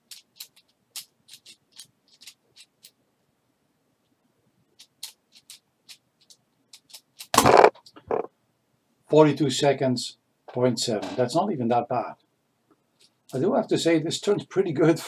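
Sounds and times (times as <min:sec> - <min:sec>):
puzzle cube plastic clicks: 0:00.1 - 0:03.0, 0:04.8 - 0:08.3.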